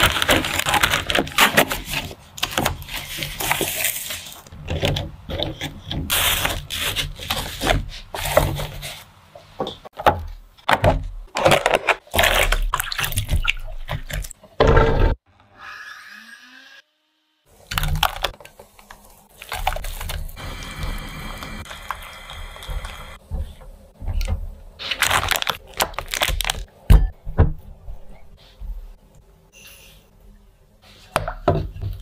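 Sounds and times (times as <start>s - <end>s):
plastic bags crinkling: 0.0s - 4.5s, 17.7s - 20.4s, 24.8s - 26.7s.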